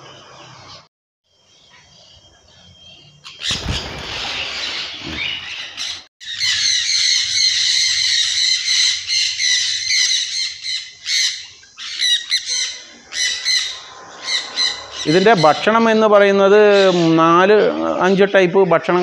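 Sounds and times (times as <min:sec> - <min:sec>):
parrots squawking and screeching: 0:03.2 - 0:15.8, 0:16.6 - 0:17.6.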